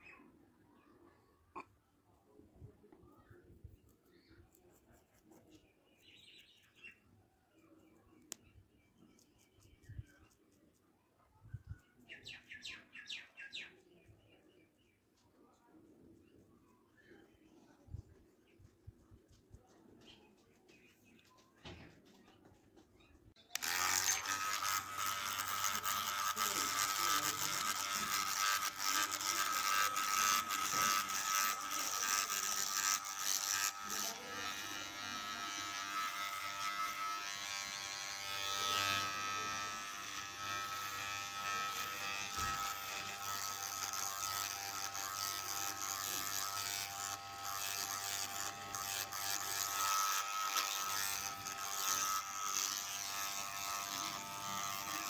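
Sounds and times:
electric hair clipper buzzing: 23.5s - 55.0s.

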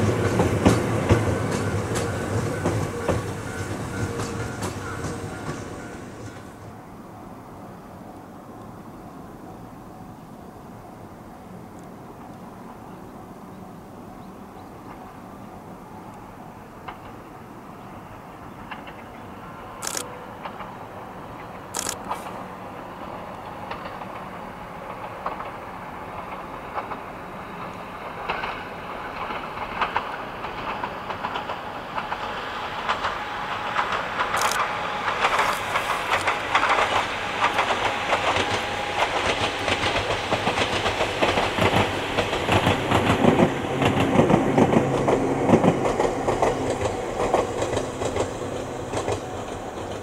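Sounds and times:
train wheels clattering over rail joints: 0.0s - 6.6s, 16.8s - 17.4s, 18.5s - 50.0s.

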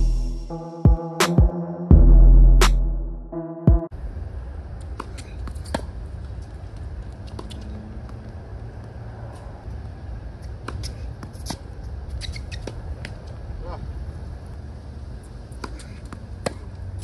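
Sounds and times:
tennis ball hitting rackets: 4.8s - 6.0s, 10.4s - 13.3s, 15.5s - 16.8s.

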